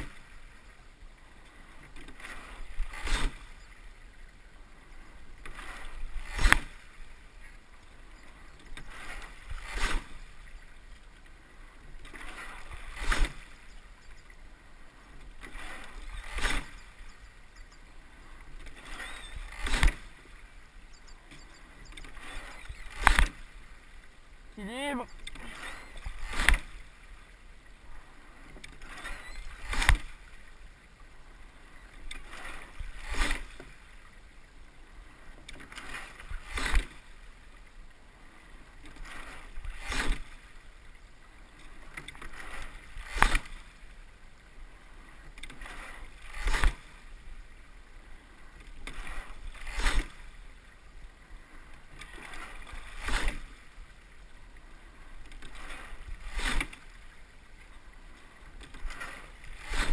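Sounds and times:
water rushing along hull: 0.0 - 59.9.

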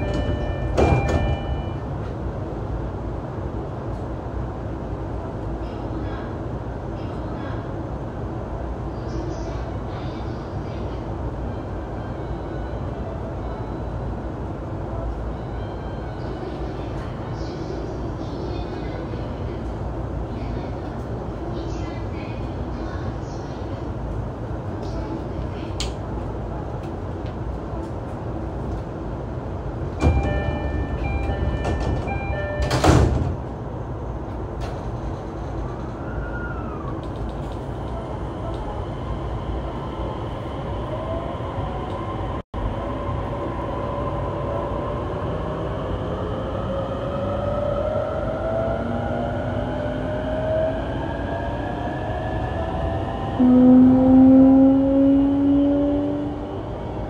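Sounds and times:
door chime: 30.0 - 32.9
sliding doors shutting with a thud: 31.3 - 33.4.

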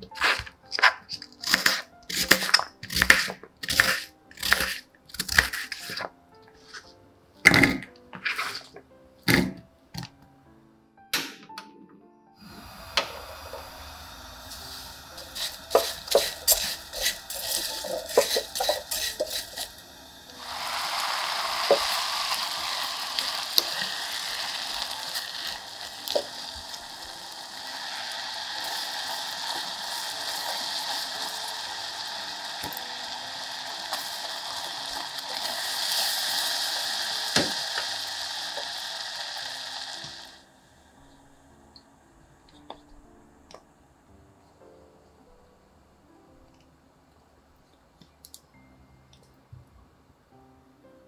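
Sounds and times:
steady sizzling hiss: 12.4 - 51.0.

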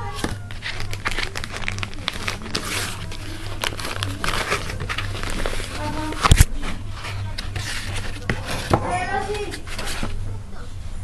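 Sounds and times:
packaging rustling and scraping: 0.0 - 10.2
steady low hum: 0.0 - 11.0.

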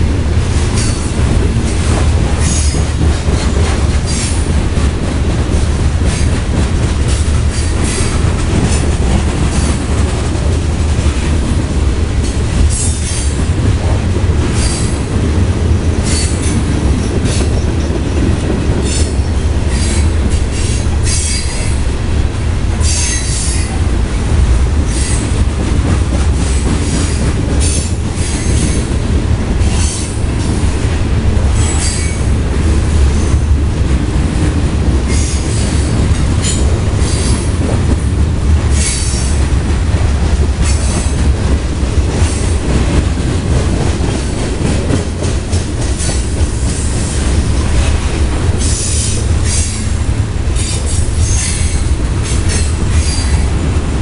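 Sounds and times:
train wheels rumbling on rails: 0.0 - 54.0
train wheels screeching: 0.7 - 4.5, 7.1 - 8.9, 12.2 - 13.4, 14.5 - 15.1, 16.0 - 17.9, 18.8 - 21.8, 22.8 - 23.8, 24.8 - 25.4, 26.4 - 28.9, 29.6 - 30.6, 31.5 - 32.3, 35.1 - 37.6, 38.7 - 39.4, 40.6 - 41.3, 48.6 - 50.0, 50.6 - 53.6.

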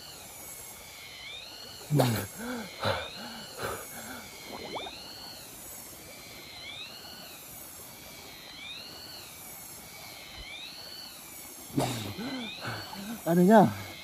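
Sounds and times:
stream water rushing: 2.1 - 5.0.

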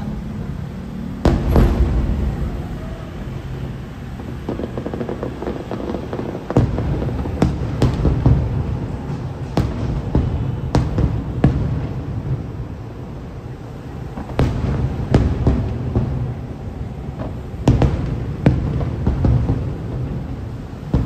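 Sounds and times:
fireworks shells bursting: 1.2 - 5.8.

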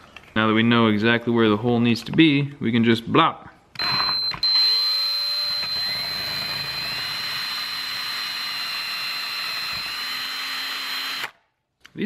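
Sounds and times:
electric drill whining: 3.8 - 11.4.

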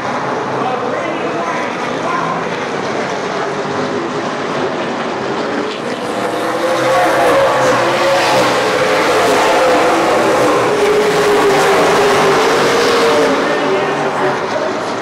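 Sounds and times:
race car engines running: 0.0 - 15.0.

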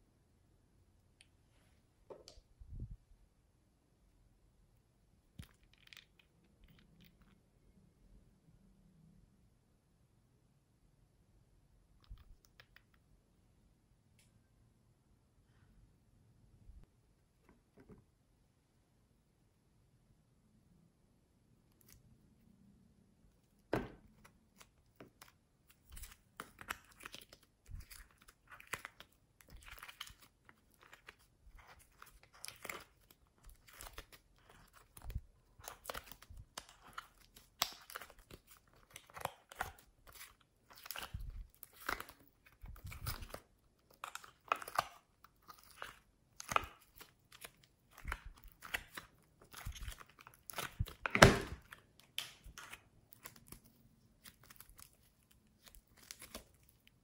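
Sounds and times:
clay squishing and tearing: 5.2 - 7.6, 21.5 - 57.0.

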